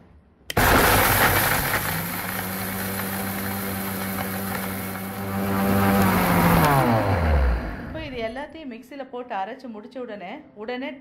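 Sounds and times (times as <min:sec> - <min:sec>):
mixer grinder motor running: 0:00.5 - 0:08.2.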